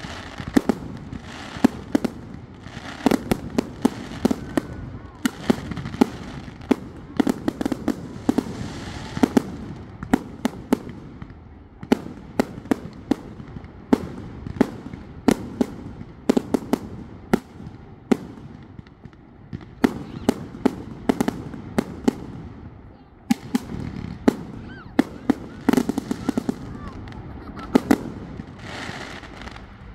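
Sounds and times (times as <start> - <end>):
fireworks bangs and pops: 0.0 - 29.9.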